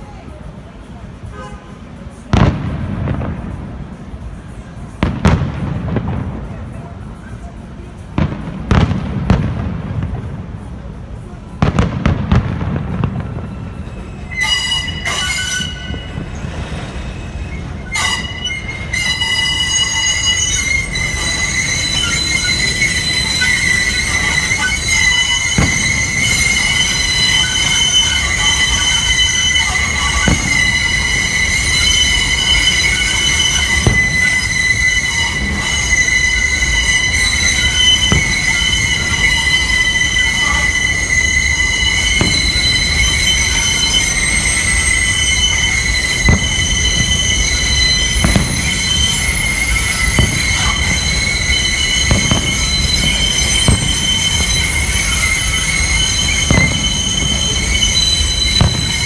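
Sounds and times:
dull firework bangs: 2.3 - 4.0, 5.0 - 6.8, 8.2 - 10.6, 11.6 - 13.6, 21.0 - 31.5, 46.1 - 49.2, 49.8 - 55.3, 56.4 - 57.8, 58.5 - 59.0
train wheels squealing: 12.9 - 59.0.

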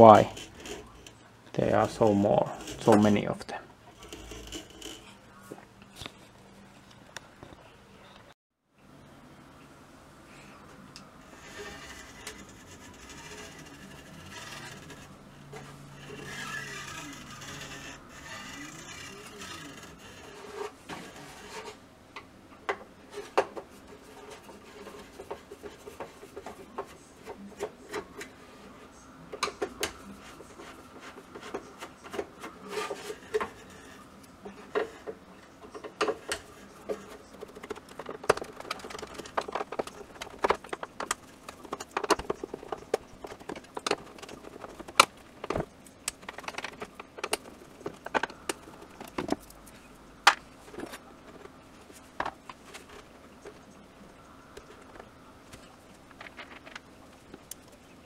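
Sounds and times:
housing being handled: 29.3 - 58.0.

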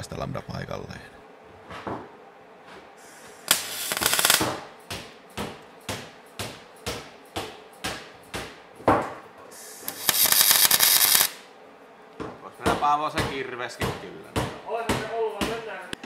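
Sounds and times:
welder arc crackling: 3.4 - 4.7, 9.6 - 11.5.

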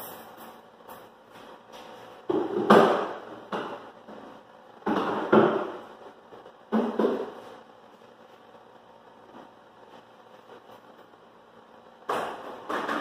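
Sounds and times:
wooden knocks and clunks: 4.8 - 5.8.

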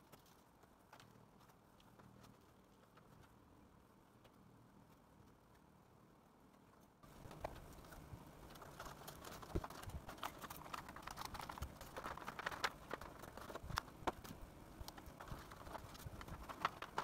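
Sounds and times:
hands tapping and rustling foam board: 6.5 - 17.0.

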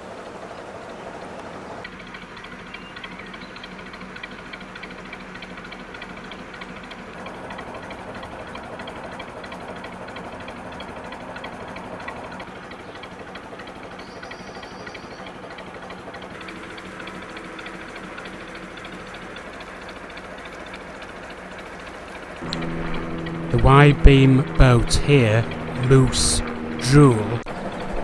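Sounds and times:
boat diesel engine running: 0.0 - 28.0.

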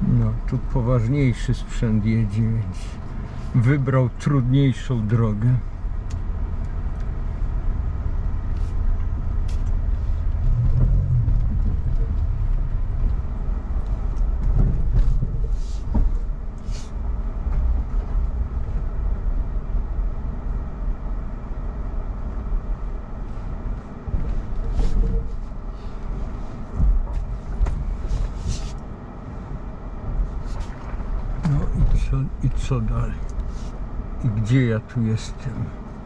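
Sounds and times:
tyres rumbling over dirt trail: 9.2 - 20.2, 30.0 - 36.0.

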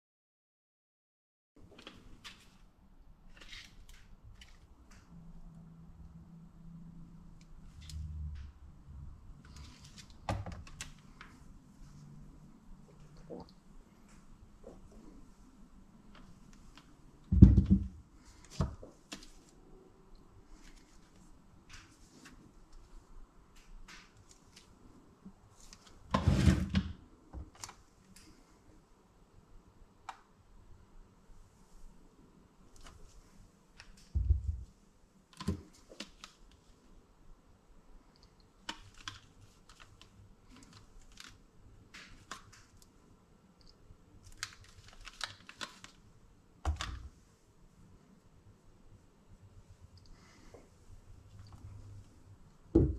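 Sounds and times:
clicks and rustles of handling: 38.1 - 43.0, 43.6 - 46.0.

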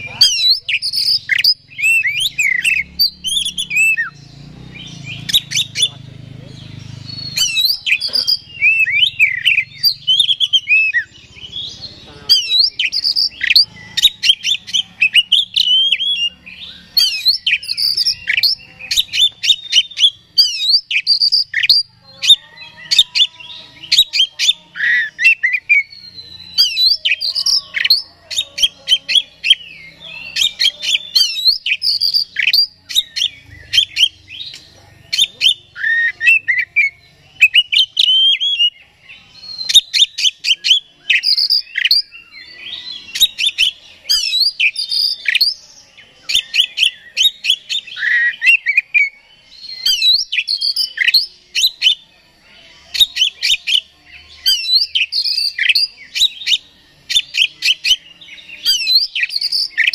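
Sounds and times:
bird singing whistles and clicks: 39.6 - 42.1, 58.6 - 59.9.

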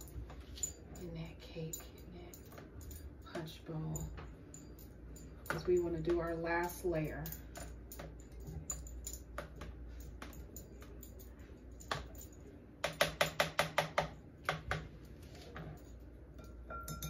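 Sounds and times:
ladle tapping glass bowl: 16.4 - 17.0.

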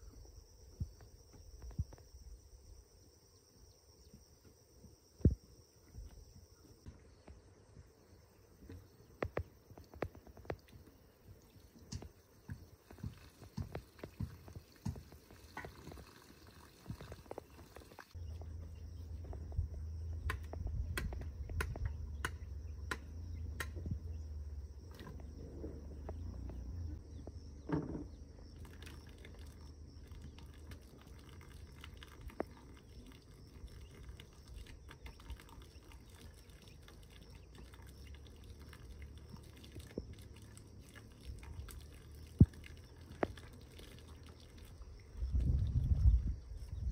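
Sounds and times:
low rumble: 18.2 - 27.5.

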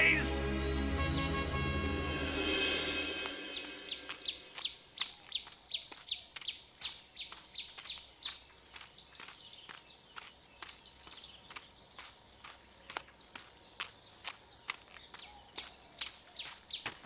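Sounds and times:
background music: 0.0 - 4.6
bird chirping: 3.1 - 17.0
footsteps on dirt path: 3.2 - 17.0.

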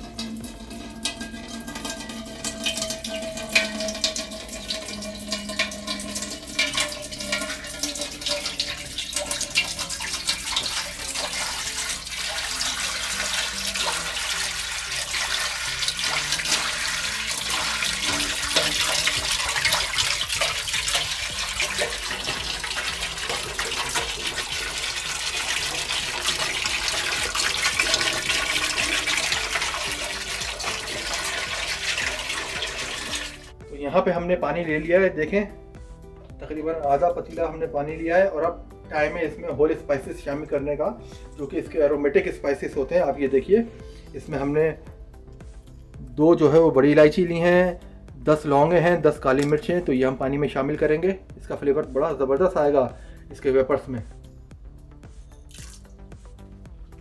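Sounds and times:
water pouring into metal pot: 0.0 - 33.6, 55.5 - 56.0.

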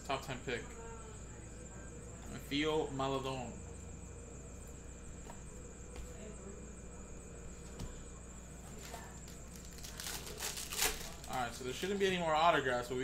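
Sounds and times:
cards and foil pack handled: 8.8 - 12.0.

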